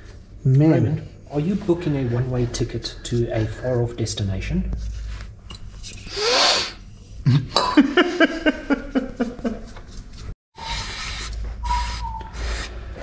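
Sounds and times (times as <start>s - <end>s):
short pitched squeals: 10.6s - 13.0s.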